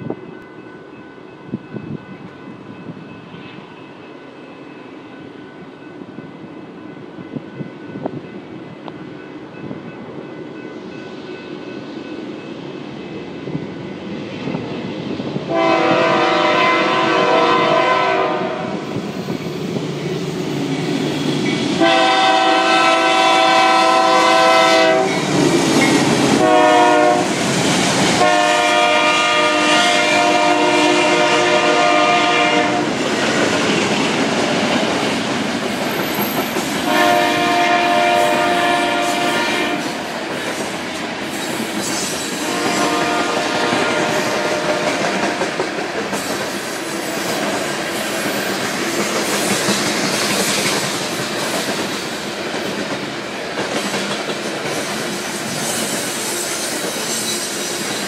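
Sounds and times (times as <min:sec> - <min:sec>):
train wheels clattering on rails: 0:00.0 - 0:58.0
train air horn blasts: 0:15.5 - 0:19.0, 0:21.8 - 0:25.2, 0:26.4 - 0:27.4, 0:28.2 - 0:33.0, 0:36.8 - 0:40.0, 0:42.4 - 0:45.2.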